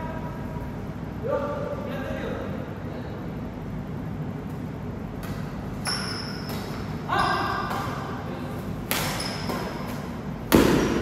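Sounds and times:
rackets hitting shuttlecock: 5.1s - 11.0s.

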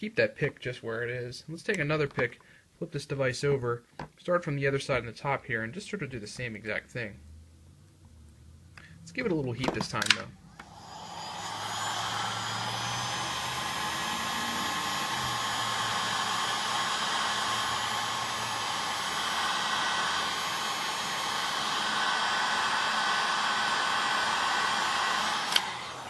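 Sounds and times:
heat gun blowing hot air: 10.6s - 26.0s.

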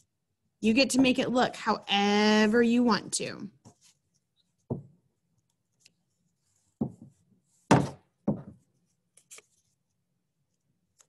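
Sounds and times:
dull thumps on a tabletop: 4.7s - 5.0s, 6.8s - 8.7s.

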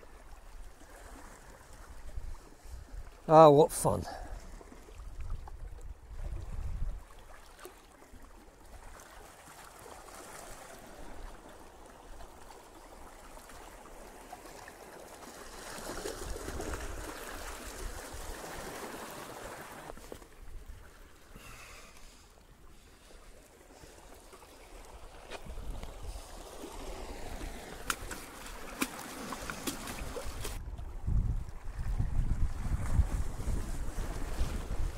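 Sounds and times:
sea water washing among rocks: 8.8s - 22.2s, 22.9s - 30.6s, 31.7s - 34.9s.

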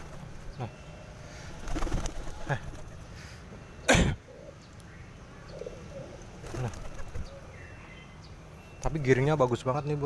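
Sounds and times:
pigeon wings flapping: 1.6s - 3.0s, 6.4s - 7.3s
short cough-like burst: 3.9s - 4.2s.

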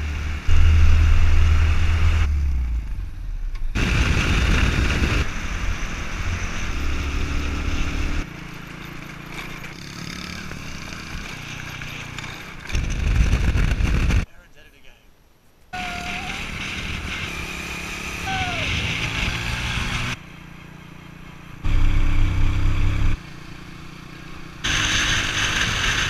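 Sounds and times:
wind rushing over microphone: 3.7s - 8.2s, 12.7s - 14.3s.

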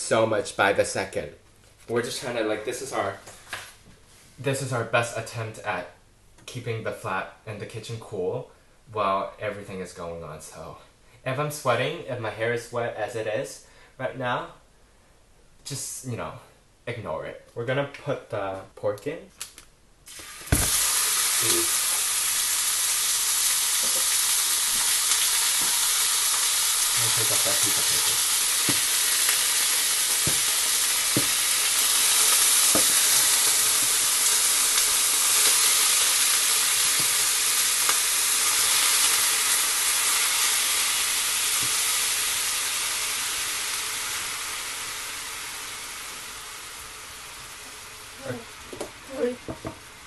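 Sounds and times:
meat sizzling in frying pan: 20.0s - 50.0s
wooden spatula knocks: 30.2s - 30.5s, 49.5s - 49.8s.

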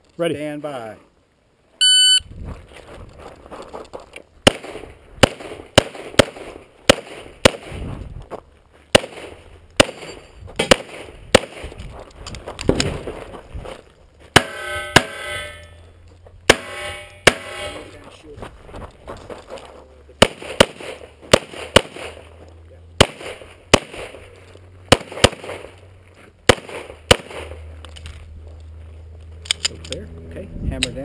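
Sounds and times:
ringing tone: 1.8s - 2.3s, 14.4s - 16.0s, 16.6s - 18.0s
pistol shots: 4.4s - 7.8s, 8.9s - 11.8s, 16.5s - 17.9s, 20.2s - 22.3s, 23.0s - 24.2s, 24.9s - 25.8s, 26.4s - 27.6s.

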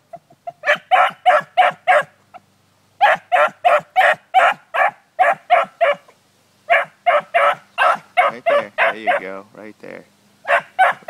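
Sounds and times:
dog barking: 0.6s - 2.1s, 3.0s - 6.1s, 6.7s - 9.3s, 10.4s - 11.0s.

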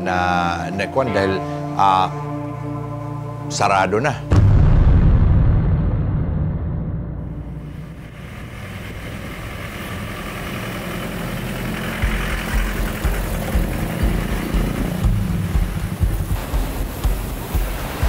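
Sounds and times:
traffic engines and tyre noise: 7.7s - 18.0s.

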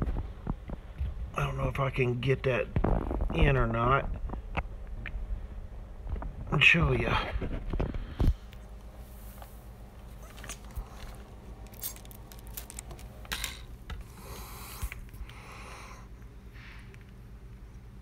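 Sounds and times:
air conditioning hum: 0.0s - 18.0s
handling clicks and rustles: 7.6s - 14.1s.

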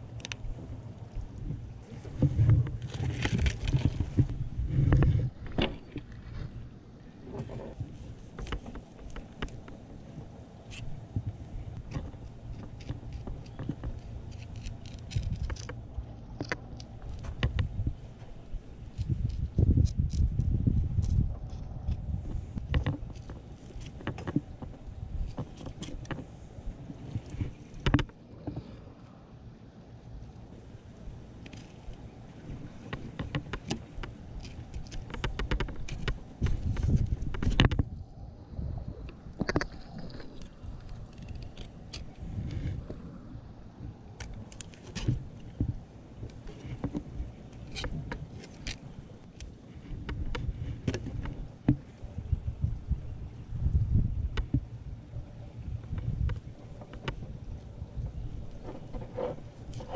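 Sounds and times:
low steady rumble: 0.0s - 59.9s
knife clicking and scraping fish: 11.8s - 24.4s, 31.4s - 37.8s, 39.4s - 43.0s, 44.1s - 51.5s, 58.4s - 59.9s.

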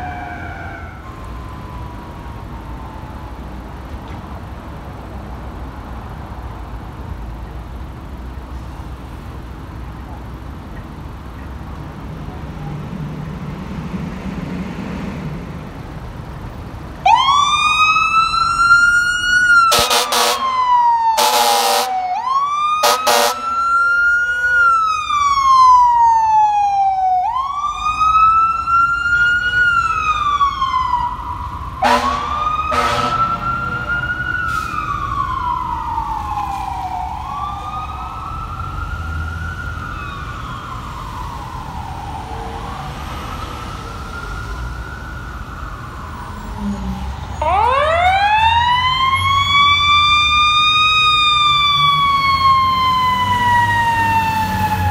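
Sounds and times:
fire engine siren wailing: 0.0s - 5.0s, 6.0s - 54.9s
air horn blasts: 19.7s - 20.6s, 21.2s - 22.0s, 22.8s - 23.7s, 31.8s - 33.6s.

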